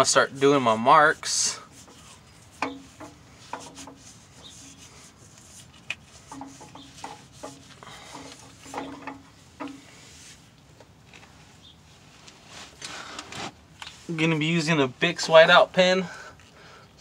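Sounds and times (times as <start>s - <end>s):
cloth rubbing on oily metal: 0.0s - 10.5s.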